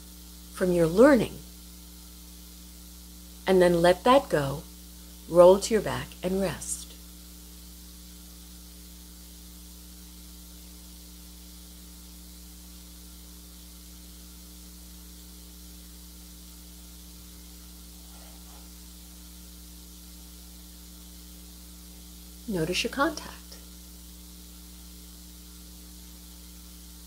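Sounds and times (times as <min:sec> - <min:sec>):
electrical mains hum with hiss: 0:00.0 - 0:27.0.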